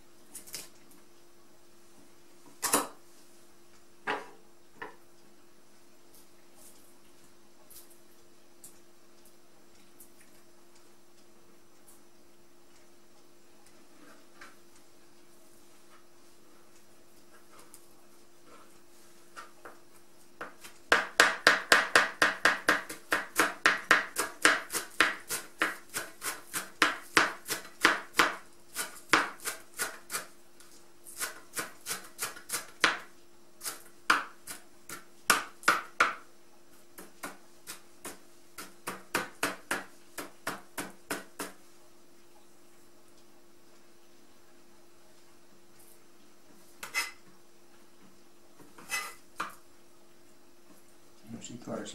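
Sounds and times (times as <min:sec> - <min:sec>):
knife chopping on plastic board: 0:20.4 - 0:30.3, 0:31.2 - 0:36.2, 0:37.0 - 0:41.6.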